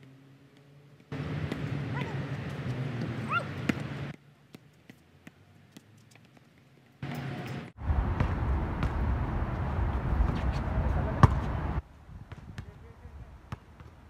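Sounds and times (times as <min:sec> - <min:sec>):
basketball bouncing on hard court: 0:01.2 - 0:05.4, 0:11.2 - 0:11.5
wind rumble on microphone: 0:07.8 - 0:13.5.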